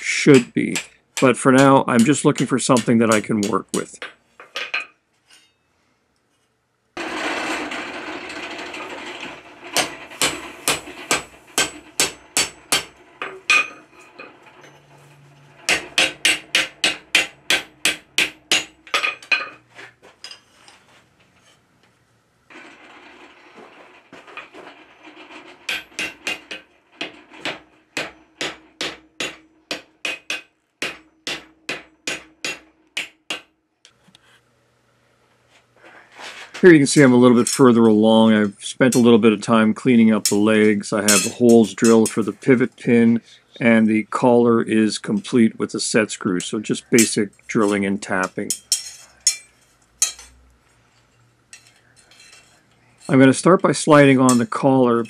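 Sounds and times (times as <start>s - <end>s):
hammer striking iron on anvil: 0.4s - 4.9s, 9.8s - 13.8s, 15.5s - 19.6s, 25.7s - 33.5s
anvil ringing: 9.7s - 19.6s
hammer blows on anvil: 14.5s - 19.6s.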